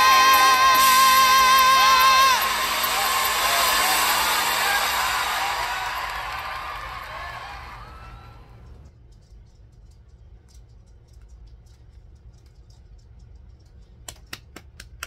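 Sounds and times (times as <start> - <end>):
low hum: 0.0 - 9.2.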